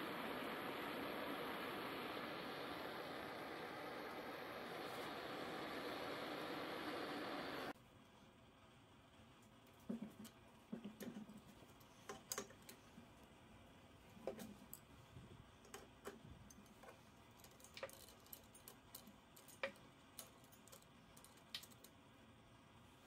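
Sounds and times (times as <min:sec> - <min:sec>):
faint metallic clicks and taps: 0:09.4 - 0:13.4, 0:15.6 - 0:22.0.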